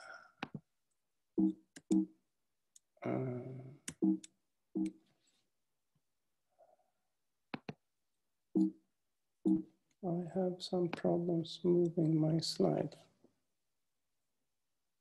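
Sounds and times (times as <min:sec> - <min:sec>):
computer mouse clicks: 0:07.5 - 0:07.8.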